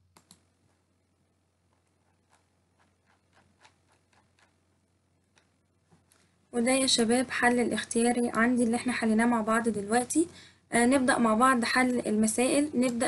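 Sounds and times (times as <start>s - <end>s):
mouse and keyboard clicks: 0.1s - 0.5s, 1.7s - 4.6s.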